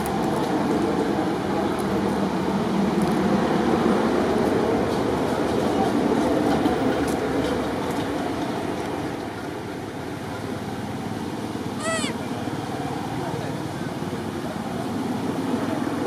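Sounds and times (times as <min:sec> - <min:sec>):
high-pitched chirp-like call: 0:11.8 - 0:12.2.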